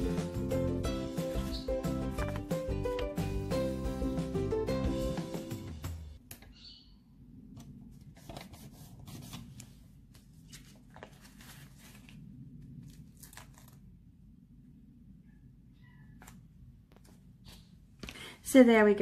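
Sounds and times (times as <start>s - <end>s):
low room hum: 6.2s - 19.0s.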